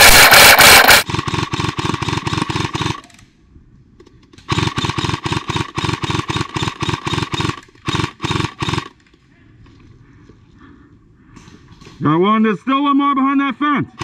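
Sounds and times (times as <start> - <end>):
gearbox whining: 0.0 - 3.0
airsoft gun firing full auto: 0.0 - 3.2, 4.5 - 9.0.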